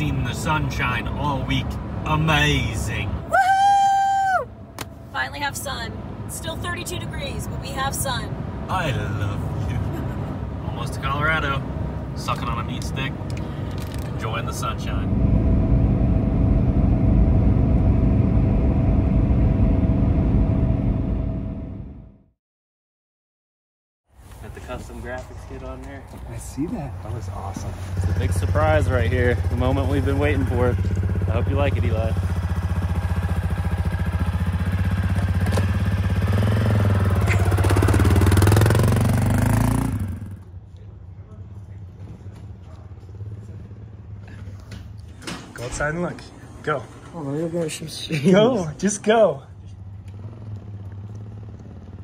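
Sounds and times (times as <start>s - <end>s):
vehicle road and engine rumble: 0.0s - 22.3s, 24.1s - 52.0s
engine running: 13.2s - 22.3s, 27.0s - 40.5s.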